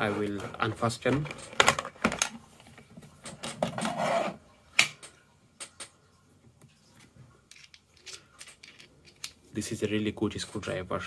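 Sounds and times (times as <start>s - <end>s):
plastic case clicking and rattling: 1.2s - 2.4s.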